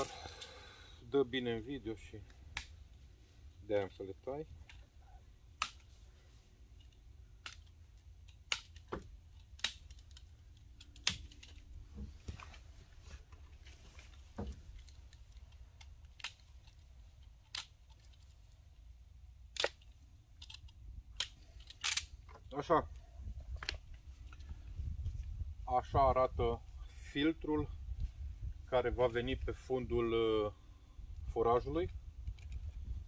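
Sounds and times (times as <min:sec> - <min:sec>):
cable ties being snipped: 0:06.8 - 0:11.7.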